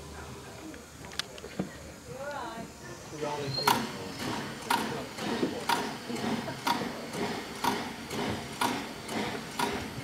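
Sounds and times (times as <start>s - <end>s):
steam locomotive rolling: 2.6s - 10.0s
rhythmic metallic clicks: 3.7s - 9.9s.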